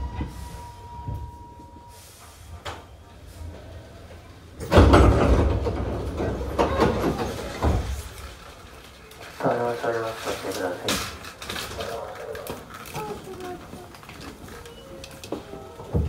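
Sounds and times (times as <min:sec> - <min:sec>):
train doors sliding open: 0:00.0 - 0:09.1, 0:09.8 - 0:11.8.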